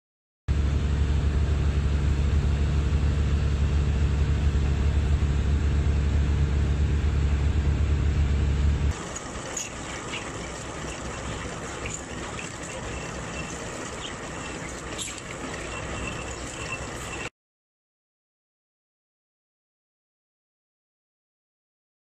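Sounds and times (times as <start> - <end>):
boat engine droning: 0.5 - 17.3
rushing water: 8.9 - 17.3.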